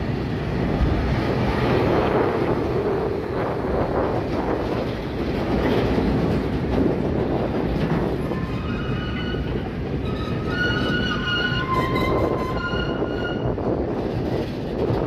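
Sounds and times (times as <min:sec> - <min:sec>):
freight train wheels rolling on rails: 0:00.0 - 0:15.0
high squealing of train wheels: 0:08.0 - 0:14.7.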